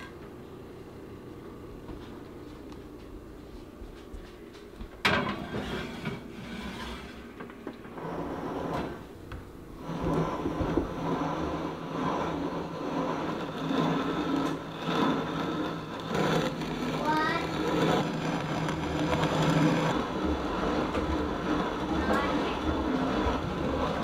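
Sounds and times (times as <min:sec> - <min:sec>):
grain mill grinding: 0:05.3 - 0:24.0.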